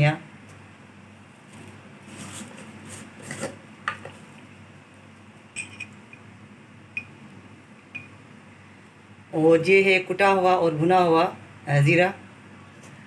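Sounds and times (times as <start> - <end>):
low steady hum: 0.0 - 13.0
rustle: 1.5 - 3.5
metal utensils clinking: 5.6 - 6.0.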